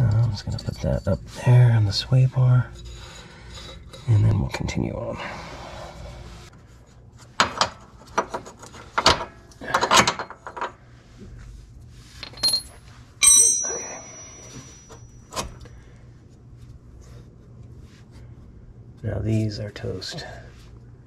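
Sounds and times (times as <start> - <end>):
bright metallic clink: 12.2 - 15.2
metal tools clattering: 12.2 - 15.4.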